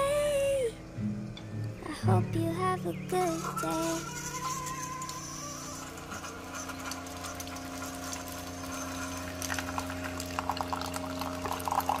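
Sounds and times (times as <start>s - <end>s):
coffee maker pump humming: 1.4s - 12.0s
coffee pouring into a mug: 4.4s - 12.0s.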